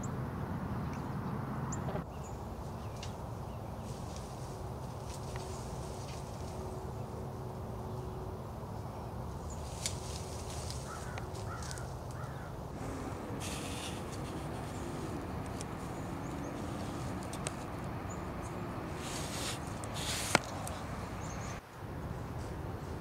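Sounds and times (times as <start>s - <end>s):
steady low rumble: 12.0s - 23.0s
faint clicks: 13.8s - 18.6s.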